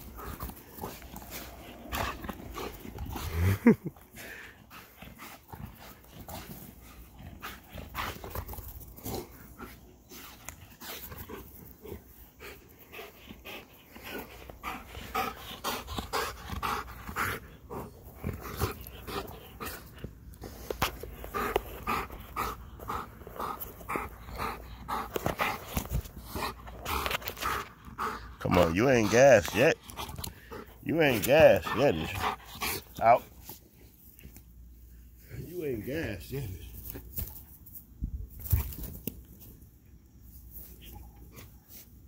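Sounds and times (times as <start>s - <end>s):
dog panting hard: 0.0s - 33.5s.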